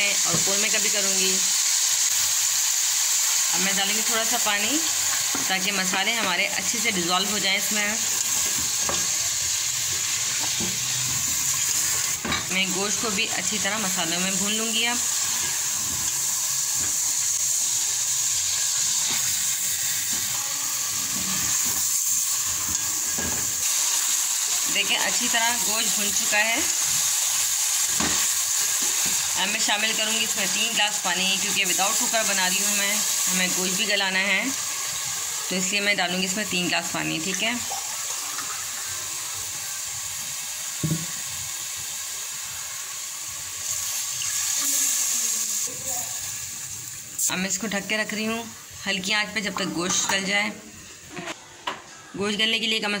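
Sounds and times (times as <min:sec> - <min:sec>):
meat sizzling in oil: 0:00.0 - 0:51.2.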